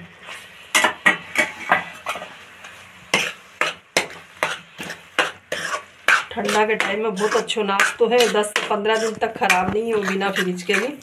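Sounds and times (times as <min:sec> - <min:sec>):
spoon scraping and clinking pan: 0:03.2 - 0:11.0.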